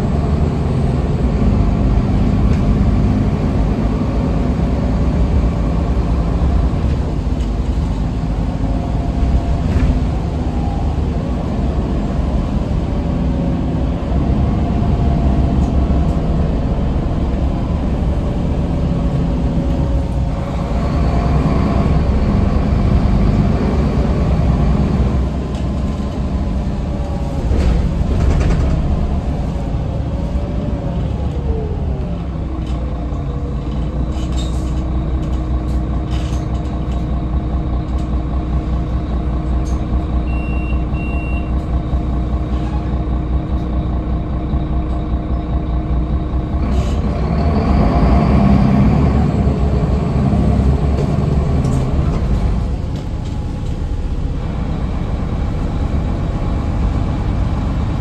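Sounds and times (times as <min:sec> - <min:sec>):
bus engine rumble and whine: 0:00.0 - 0:58.0
short high beeps: 0:40.3 - 0:41.5.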